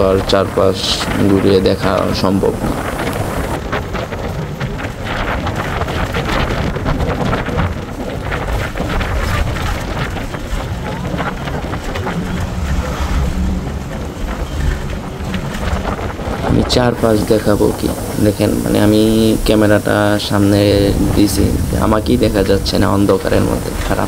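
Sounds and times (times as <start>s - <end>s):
bus engine and road rumble: 0.0s - 24.0s.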